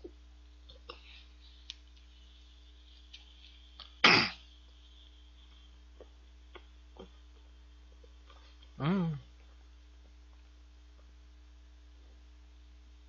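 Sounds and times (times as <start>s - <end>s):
man coughing: 4.0s - 4.4s.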